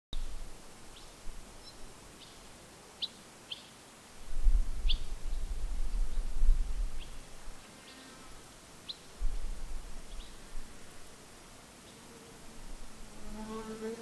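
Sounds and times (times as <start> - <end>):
bird chirping: 1.0 - 3.8.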